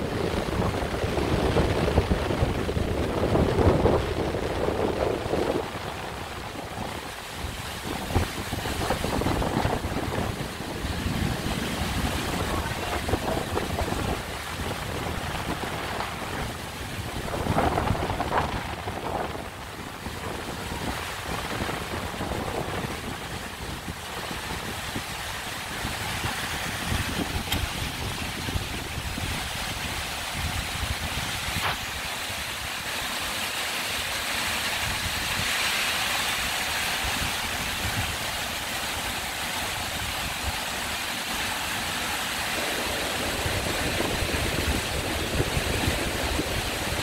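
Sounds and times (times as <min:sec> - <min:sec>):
wind buffeting microphone: 0:00.0 - 0:32.8, 0:36.8 - 0:38.4, 0:42.5 - 0:47.0
heavy rain pouring: 0:00.0 - 0:47.0.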